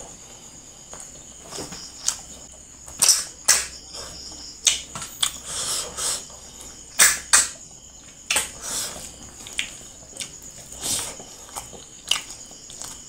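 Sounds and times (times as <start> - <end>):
wet mouth smacks chewing: 9.4 - 13.0.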